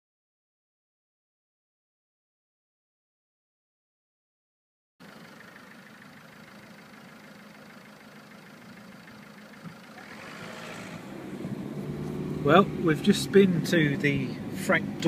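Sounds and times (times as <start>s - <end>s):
car engine idling: 5.0s - 15.0s.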